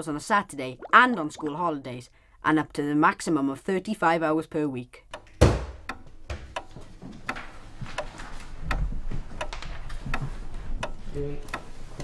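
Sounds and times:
wall clock ticking: 5.0s - 12.0s
heavy thump: 5.4s - 6.5s.

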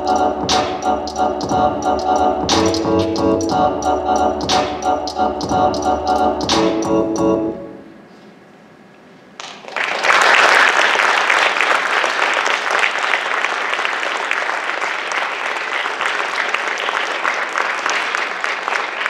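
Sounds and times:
audience applauding: 9.4s - 19.0s.

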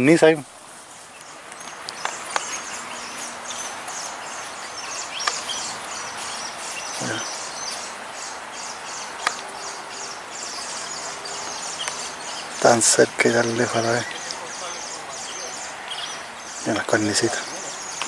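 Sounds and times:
small birds chirping: 0.0s - 18.0s
sharp click: 5.2s - 5.4s.

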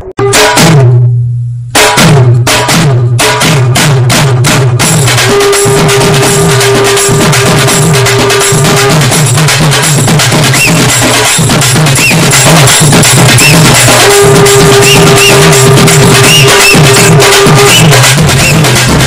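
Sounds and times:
steady drum beat: 0.0s - 19.0s
repeating bass line: 5.4s - 19.0s.

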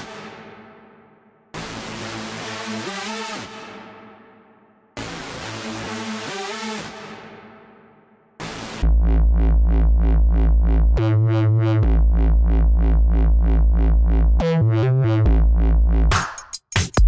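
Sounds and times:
synthesizer: 0.0s - 17.0s
deep pulsing bass: 8.8s - 16.1s.

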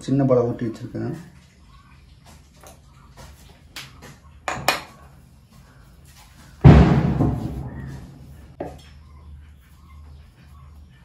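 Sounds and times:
loud thump of dough: 6.6s - 7.7s.

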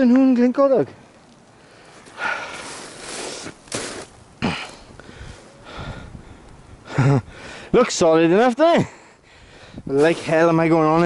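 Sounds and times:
man breathing hard: 4.4s - 7.7s, 8.9s - 9.9s.

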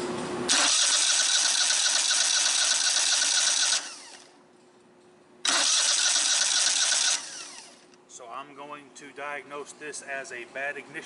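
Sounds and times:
electric starter cranking engine: 0.5s - 4.4s, 5.4s - 8.0s.

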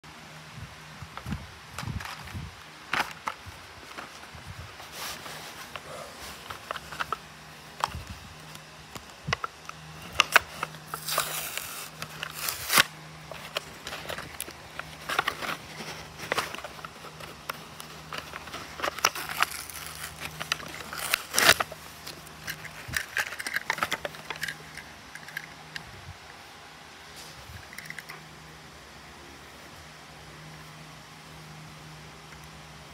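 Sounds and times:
plastic packaging crackling: 4.9s - 25.6s
cardboard scraping and tearing: 10.2s - 24.3s.

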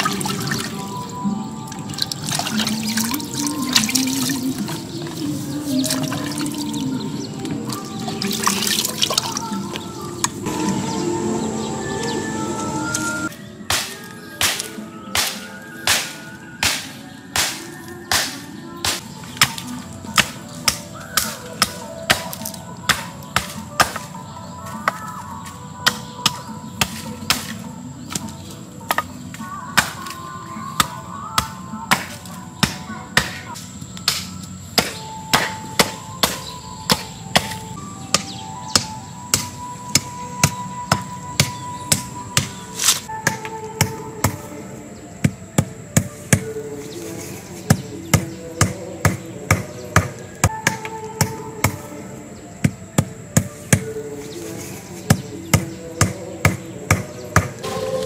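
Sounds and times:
background music: 0.0s - 58.0s
water pouring and dripping: 1.8s - 5.2s
water splashing in pot: 1.9s - 4.7s
hatchet chopping wood: 13.7s - 24.1s, 34.0s - 44.4s, 47.7s - 51.8s, 55.1s - 57.6s.

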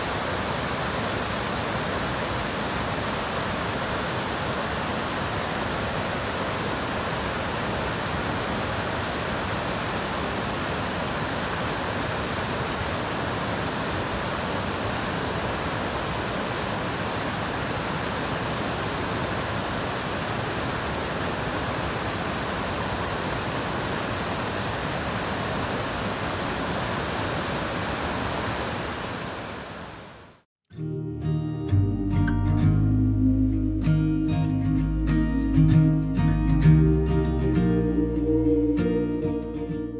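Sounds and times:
river rushing over boulders: 0.0s - 30.4s.

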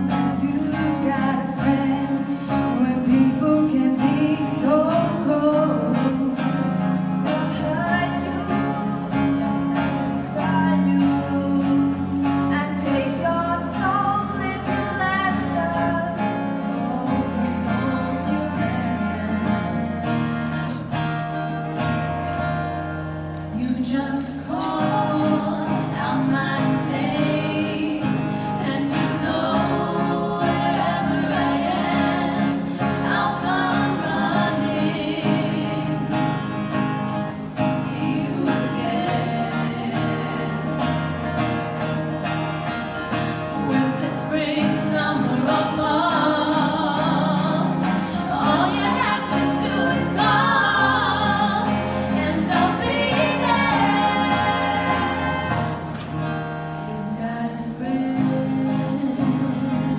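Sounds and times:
person singing: 0.0s - 20.2s, 56.9s - 59.9s
acoustic guitar chords: 0.0s - 59.9s.

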